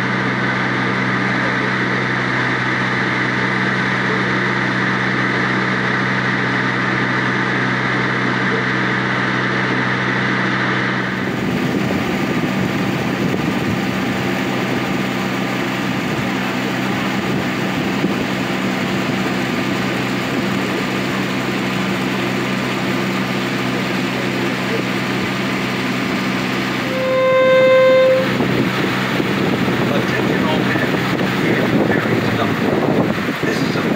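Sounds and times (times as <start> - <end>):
boat engine humming: 0.0 - 33.9
water rushing along hull: 7.6 - 33.9
boat horn blast: 26.7 - 29.6.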